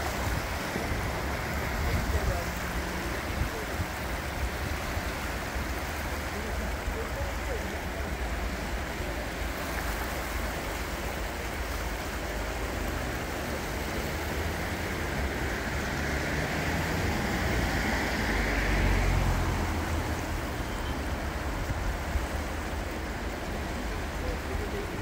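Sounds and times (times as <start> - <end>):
floodwater rushing: 0.0 - 25.0.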